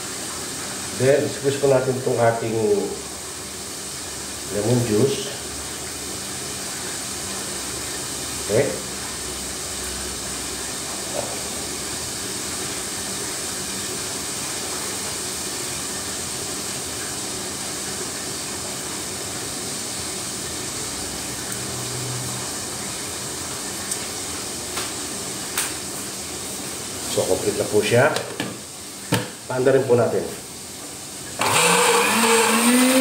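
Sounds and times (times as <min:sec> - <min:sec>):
steady background hiss: 0:22.6 - 0:31.4.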